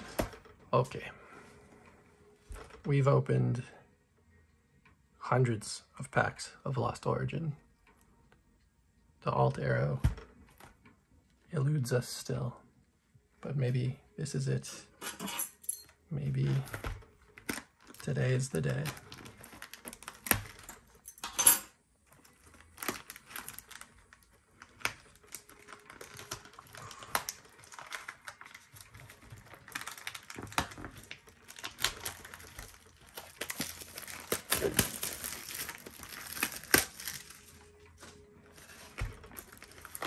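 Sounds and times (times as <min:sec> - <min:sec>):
plastic wrap crinkling: 0:16.4 - 0:21.1, 0:22.0 - 0:40.0.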